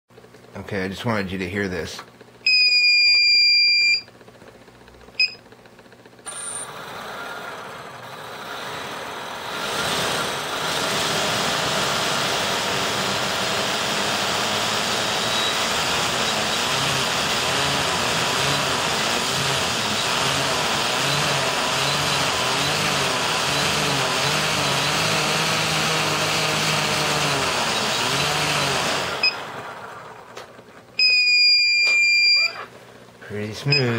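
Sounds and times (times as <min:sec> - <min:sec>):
quadcopter motors whirring: 0:06.3 - 0:29.4
loud electronic beep: 0:31.0 - 0:32.6.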